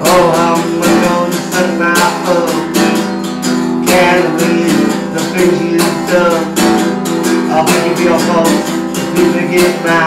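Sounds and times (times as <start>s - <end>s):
acoustic guitar strumming chords: 0.0s - 10.0s.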